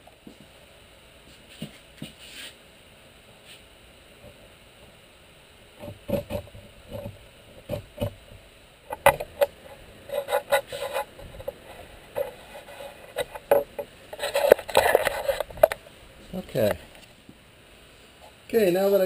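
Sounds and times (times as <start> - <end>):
blade scraping wood: 8.9 - 15.8.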